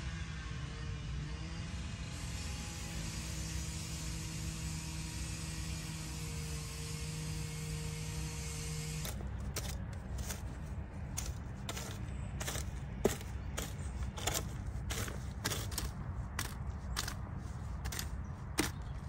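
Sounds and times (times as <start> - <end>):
steady low hum: 3.2 - 19.0
garden tool scraping soil: 5.1 - 19.0.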